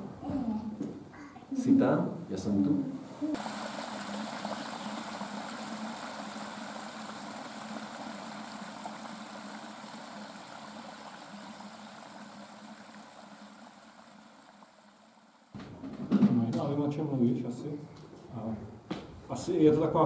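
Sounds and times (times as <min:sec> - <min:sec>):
stream running over stones: 0:03.3 - 0:15.5.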